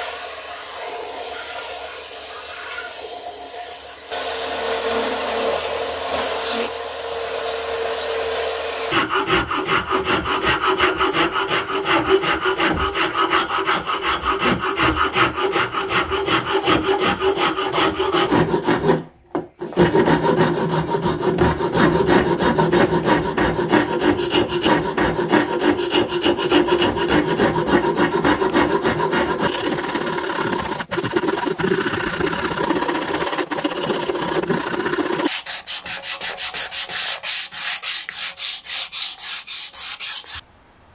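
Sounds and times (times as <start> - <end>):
belt sander running: 4.1 - 9.0, 29.4 - 35.3
rasp scraping wood: 8.9 - 40.4.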